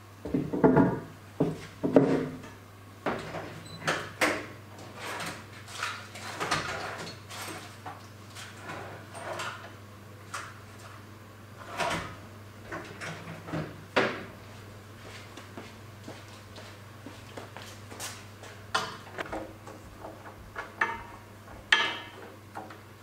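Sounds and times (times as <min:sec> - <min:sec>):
low electrical hum: 0:00.0 - 0:23.0
tools clattering on a workbench: 0:20.1 - 0:22.3.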